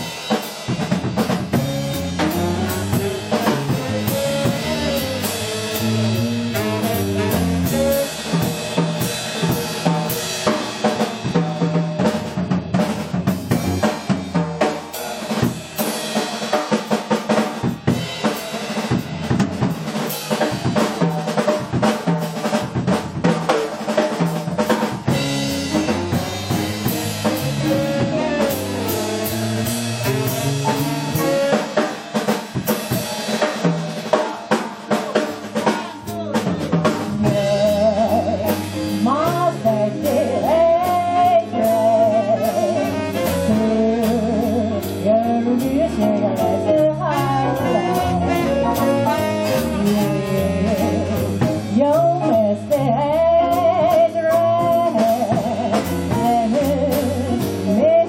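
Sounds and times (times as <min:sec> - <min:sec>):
drum kit snare and cymbal hits: 0:00.0 - 0:58.0
jazz band playing: 0:00.0 - 0:58.0
woman singing: 0:37.1 - 0:58.0.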